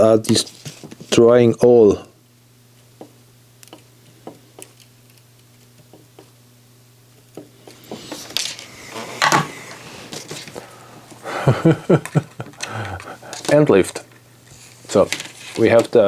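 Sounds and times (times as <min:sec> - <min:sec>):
low steady hum: 0:00.0 - 0:16.0
wire scraping and rustling: 0:13.2 - 0:16.0.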